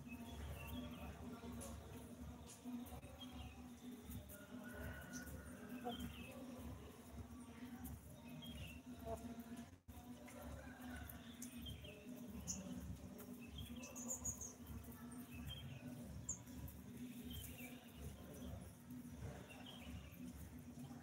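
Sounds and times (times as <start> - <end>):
small birds chirping: 0.0 - 9.6, 10.2 - 21.0.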